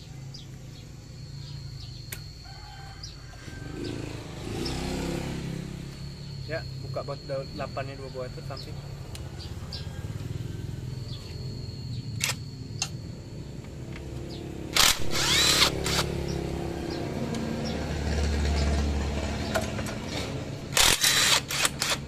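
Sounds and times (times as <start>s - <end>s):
power driver motor whining: 3.4s - 17.8s, 19.4s - 22.0s.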